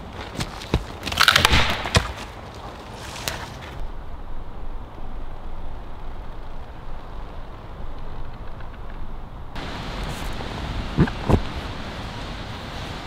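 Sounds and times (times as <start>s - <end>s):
dry sticks crackling: 0.0s - 3.9s.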